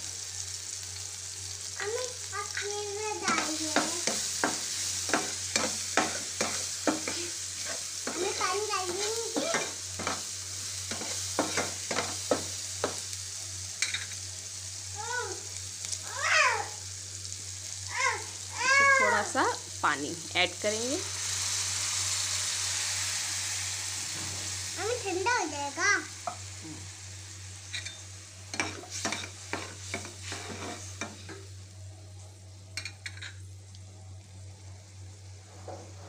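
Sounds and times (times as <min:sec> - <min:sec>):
vegetables sizzling in oil: 0:00.0 - 0:36.0
spatula scraping a wok: 0:03.3 - 0:13.1, 0:13.8 - 0:14.2, 0:27.7 - 0:31.5, 0:35.4 - 0:36.0.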